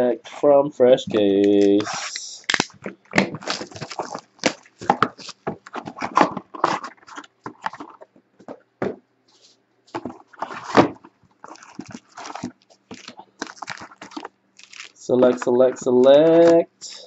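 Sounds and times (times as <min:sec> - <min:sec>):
cardboard boxes scraping and knocking: 0:10.0 - 0:13.1.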